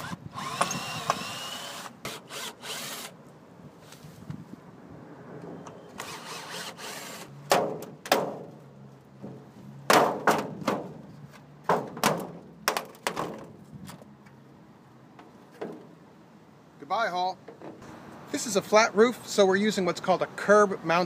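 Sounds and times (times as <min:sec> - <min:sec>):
cordless drill whirring: 0:00.0 - 0:03.2, 0:06.0 - 0:07.3
sharp knocks and thumps: 0:07.5 - 0:08.5, 0:09.2 - 0:11.0, 0:11.6 - 0:13.6.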